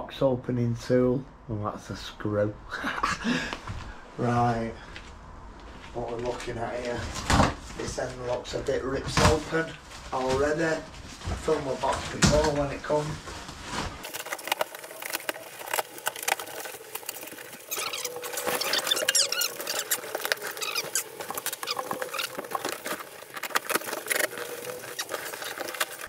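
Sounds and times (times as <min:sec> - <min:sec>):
cardboard box being torn open: 0:14.0 - 0:26.0
short high squeaks: 0:17.6 - 0:22.9.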